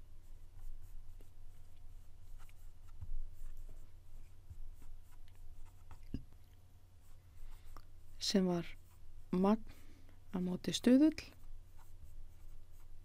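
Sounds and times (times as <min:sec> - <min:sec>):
low steady hum: 0:00.0 - 0:13.0
stylus scratching and tapping: 0:00.5 - 0:09.6.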